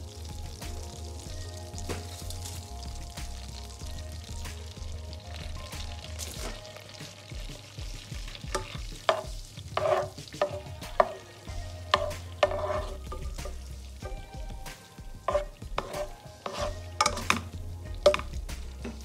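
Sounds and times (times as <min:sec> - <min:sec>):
butter sizzling in a pan: 0:00.0 - 0:19.0
spatula knocking and scraping pan: 0:07.9 - 0:14.2, 0:15.1 - 0:19.0.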